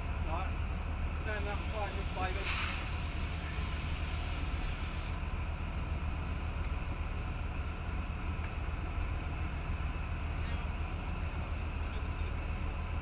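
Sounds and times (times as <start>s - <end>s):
high hiss: 1.2s - 5.2s.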